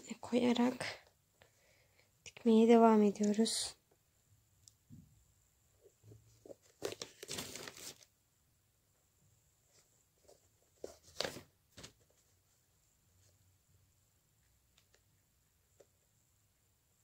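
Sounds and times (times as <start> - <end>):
hands rustling yarn doll: 5.8 - 8.1.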